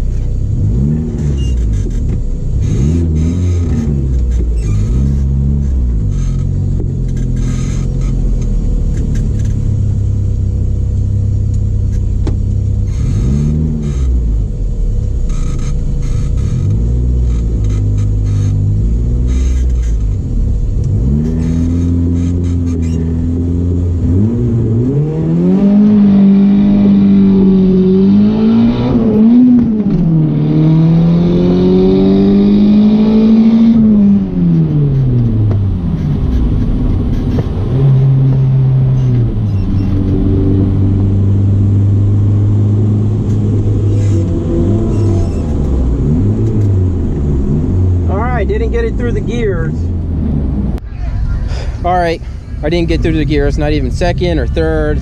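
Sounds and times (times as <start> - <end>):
car engine idling and revving: 0.0 - 55.0.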